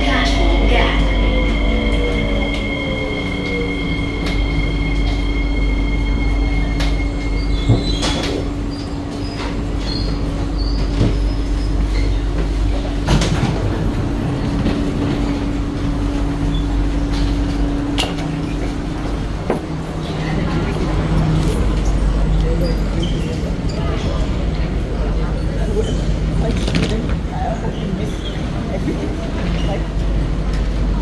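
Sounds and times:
train high whine: 0.0 - 26.4
low hum of train equipment: 0.0 - 31.0
train doors opening clunk: 6.6 - 11.3, 12.0 - 20.2.

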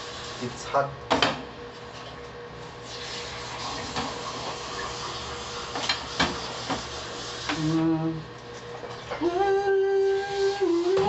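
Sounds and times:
faint hum: 7.5 - 11.0.

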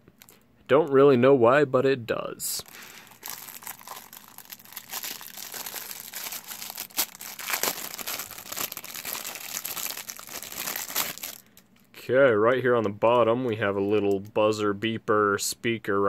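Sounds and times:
plastic bag crinkling: 2.6 - 11.9.

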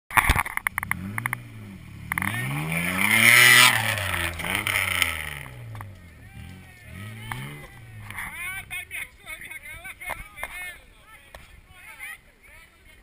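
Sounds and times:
sharp clicks: 0.1 - 1.5
suv engine revving: 0.3 - 9.0.

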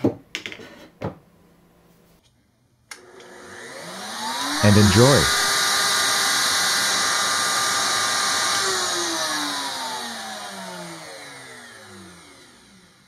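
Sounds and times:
wood router whining: 3.0 - 13.0.

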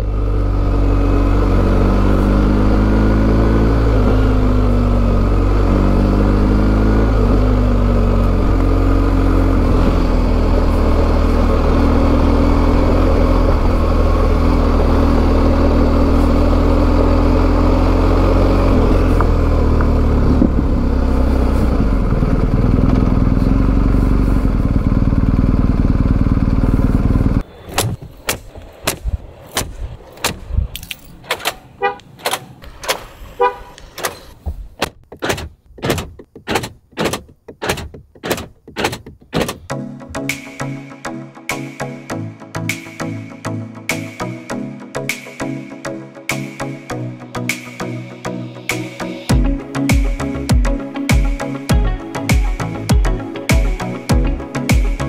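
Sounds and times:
motorcycle engine running: 0.0 - 27.4, 49.2 - 55.0
wind noise: 20.2 - 20.8.

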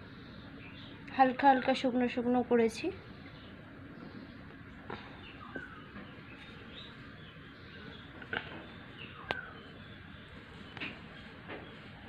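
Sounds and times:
bird chirps: 3.1 - 12.0.

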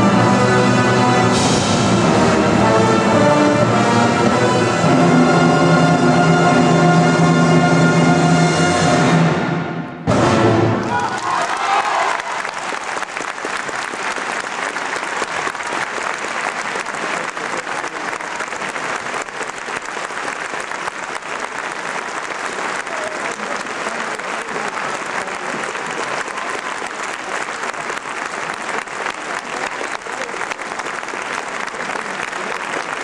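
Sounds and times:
audience applauding: 10.7 - 33.0.

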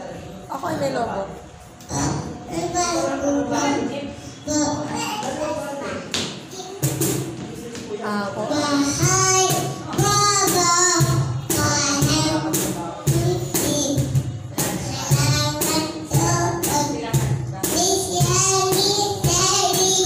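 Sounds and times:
cajon beat: 4.3 - 20.0
girl singing into a microphone: 8.5 - 20.0.

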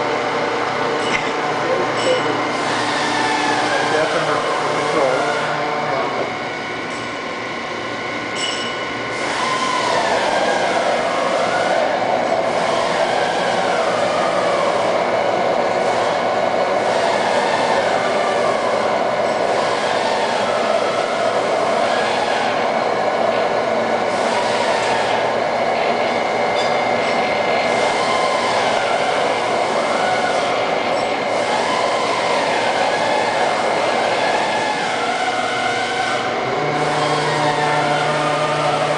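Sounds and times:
boring mill machine hum: 0.0 - 38.9
sliding machine tones: 33.6 - 38.9.

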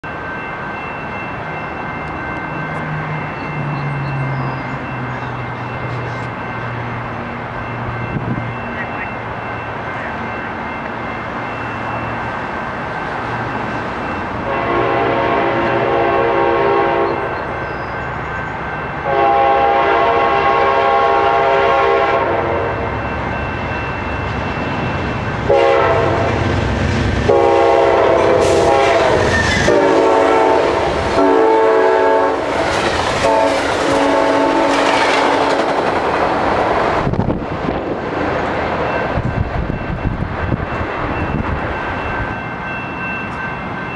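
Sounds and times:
passing train clatter: 0.0 - 43.9
train air horn blasts: 14.4 - 17.4, 19.0 - 22.8, 25.5 - 26.4, 27.3 - 32.5, 33.2 - 35.7.

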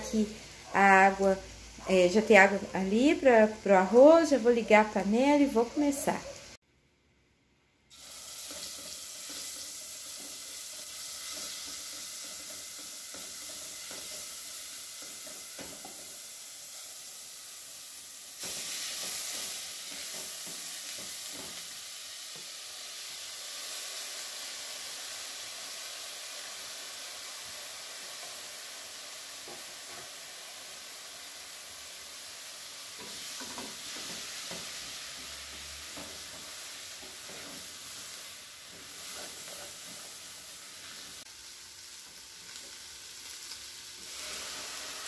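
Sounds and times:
rice sizzling in a pot: 0.0 - 6.6, 7.9 - 45.0.

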